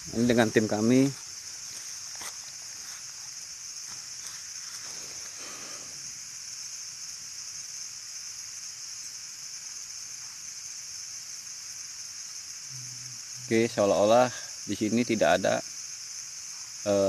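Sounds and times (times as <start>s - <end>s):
rustling of twigs: 0.0s - 6.0s
insects chorus: 0.0s - 17.0s.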